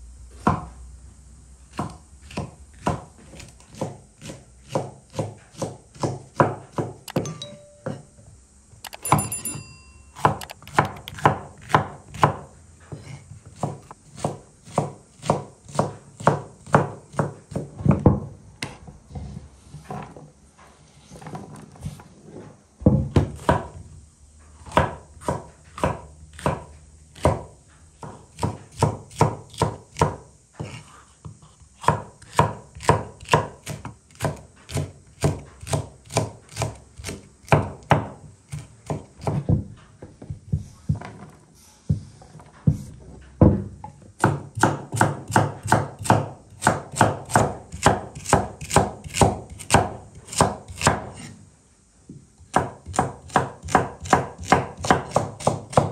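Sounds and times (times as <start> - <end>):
knife chopping on wooden board: 0.4 - 0.7, 1.7 - 7.5, 10.2 - 18.8, 22.9 - 23.8, 24.6 - 39.7, 43.4 - 51.4, 52.5 - 55.9.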